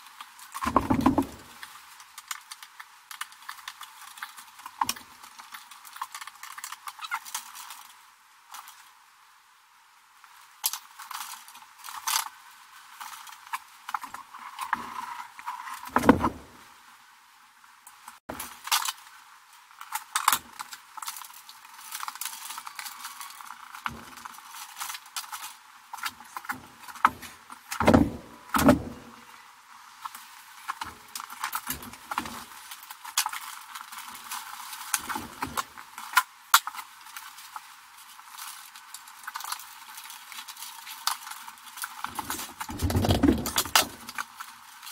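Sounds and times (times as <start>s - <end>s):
cables clicking and rattling: 30.0s - 44.9s.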